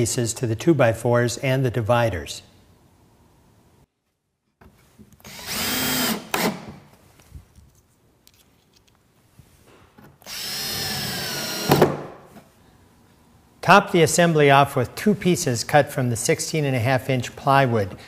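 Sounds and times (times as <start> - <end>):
cordless drill whining: 5.2 - 6.7, 10.2 - 11.8.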